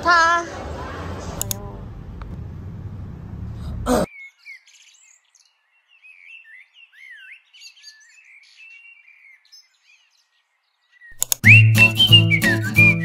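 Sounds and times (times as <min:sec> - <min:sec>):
birds chirping: 0:04.0 - 0:13.0.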